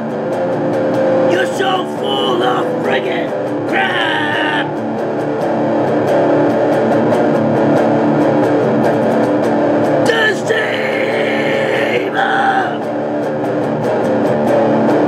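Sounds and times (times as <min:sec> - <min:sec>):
distorted electric guitar riff: 0:00.0 - 0:15.0
person singing: 0:01.3 - 0:04.8, 0:10.0 - 0:12.9.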